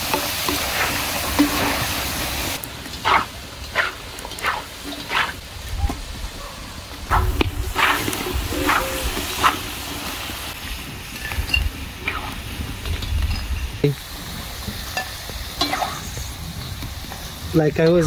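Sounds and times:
fries sizzling in hot oil: 0.0 - 6.2, 6.8 - 18.0
wind rumble on microphone: 5.4 - 14.8.

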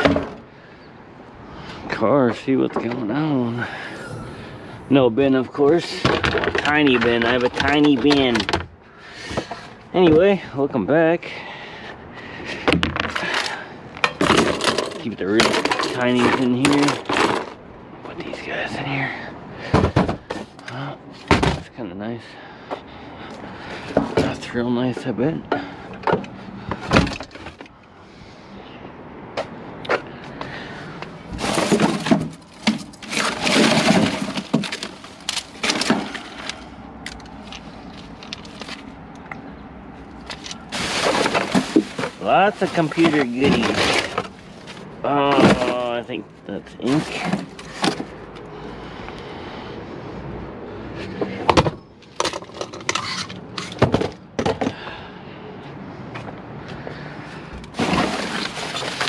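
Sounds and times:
hard plastic junk clattering: 0.0 - 0.4, 5.5 - 10.3, 12.6 - 17.6, 19.6 - 21.7, 23.8 - 27.7, 31.2 - 38.9, 40.2 - 46.0, 46.8 - 48.2, 51.4 - 54.8, 57.6 - 59.0
plastic bags crinkling: 40.4 - 44.8, 57.8 - 59.0.

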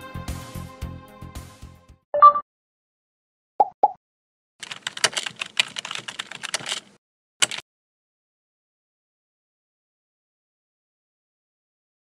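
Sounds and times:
keyboard key clicks: 4.6 - 7.6.

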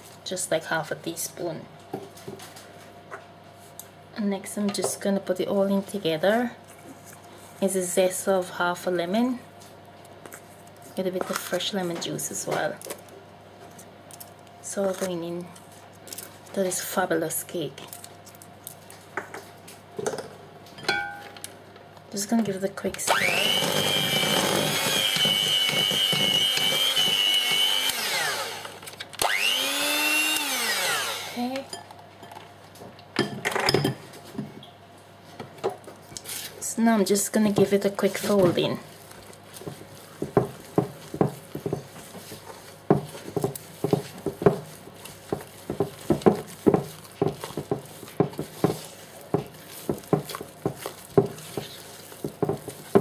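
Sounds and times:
electric hand mixer whine: 23.1 - 31.6
spatula scraping batter in bowl: 37.7 - 53.0.

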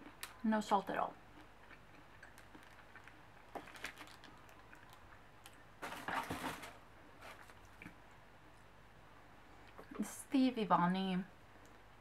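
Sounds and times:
packaging rustling and clicking: 3.6 - 5.0, 5.8 - 7.7.

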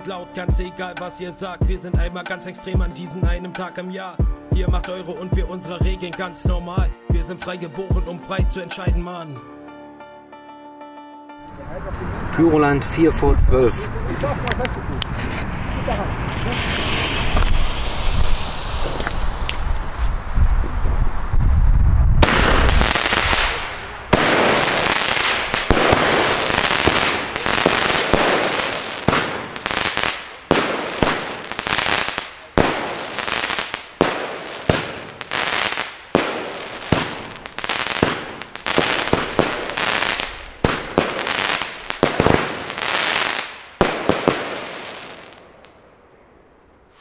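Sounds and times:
fireworks launching and bursting: 15.2 - 45.8.

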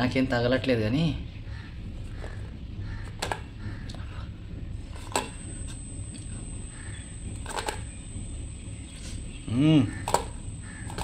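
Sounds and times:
steady low hum: 0.0 - 11.0
crows cawing: 1.5 - 4.3, 6.7 - 7.2, 9.8 - 11.0.

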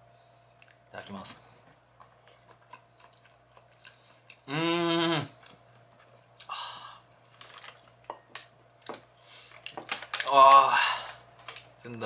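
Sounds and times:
man chewing food: 0.4 - 10.3
man humming mmm: 4.4 - 5.4.

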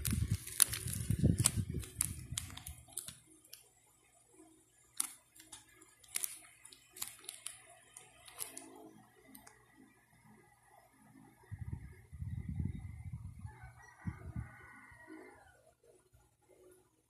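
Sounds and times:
plastic pockets crinkling: 0.0 - 3.2, 5.0 - 8.7.

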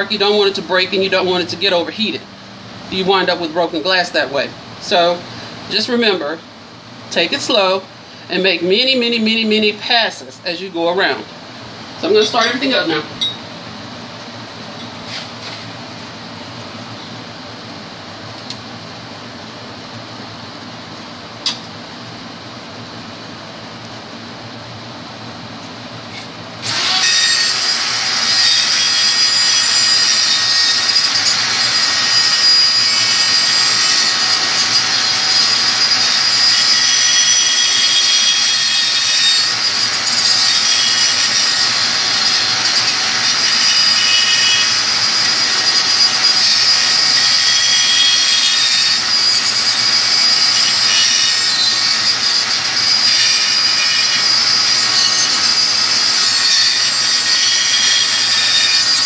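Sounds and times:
rotary tool high whine: 26.1 - 59.0
cut-off wheel grinding glass: 26.6 - 59.0.

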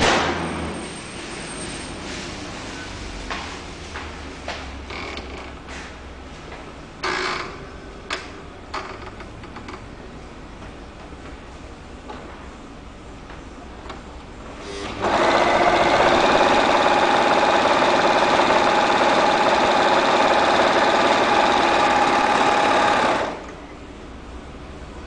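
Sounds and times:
overlocker stitching fabric: 14.8 - 23.5.

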